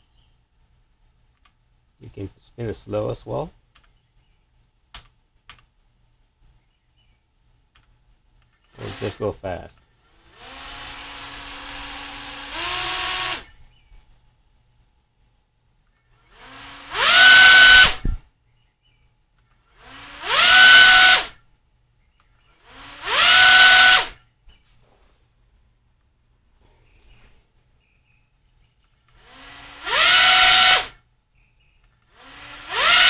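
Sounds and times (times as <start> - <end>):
small motor whining: 10.1 - 13.6, 16.2 - 18.2, 19.7 - 21.4, 22.6 - 24.2, 29.1 - 31.0, 32.1 - 33.0.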